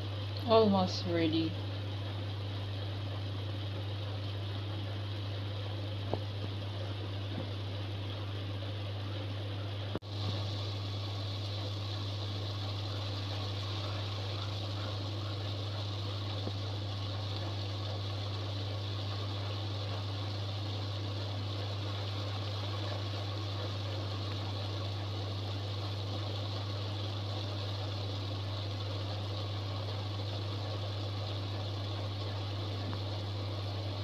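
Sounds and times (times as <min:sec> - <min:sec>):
vegetables sizzling in pot: 0:10.0 - 0:34.0.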